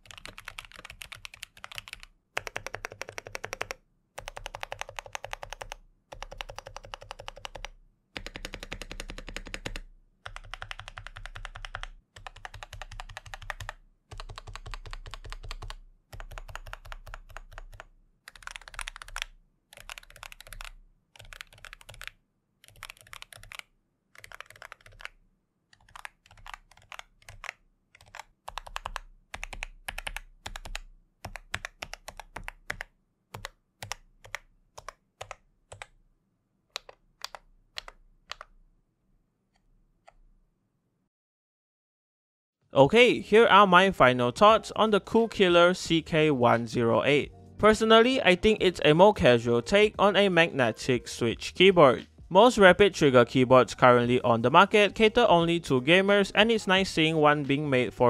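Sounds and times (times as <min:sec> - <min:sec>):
damped keyboard typing: 0:00.0 - 0:36.0, 0:36.7 - 0:38.6.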